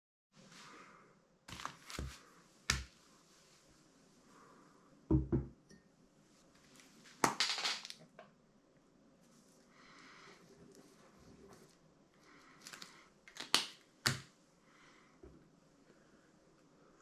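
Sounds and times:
paper rustling: 1.5s - 2.9s.

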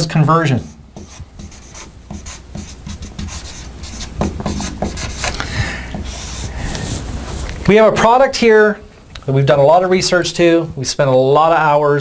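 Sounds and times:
marker squeaking on whiteboard: 1.0s - 6.5s.

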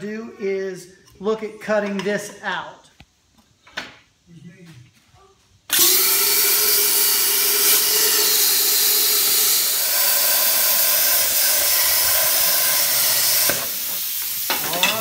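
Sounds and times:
plasma cutter hissing: 6.6s - 15.0s.

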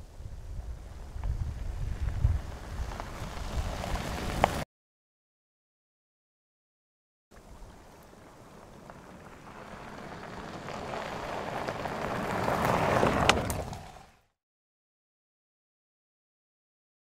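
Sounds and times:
engine rumble: 0.0s - 4.6s, 7.3s - 14.3s
tyres crunching on gravel: 0.8s - 4.6s, 7.4s - 14.1s.

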